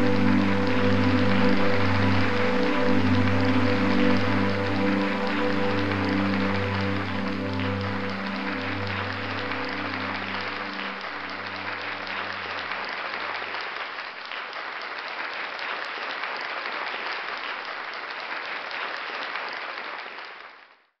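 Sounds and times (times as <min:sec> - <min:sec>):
band holding final chord: 0:00.0 - 0:13.3
audience applauding: 0:00.0 - 0:20.8.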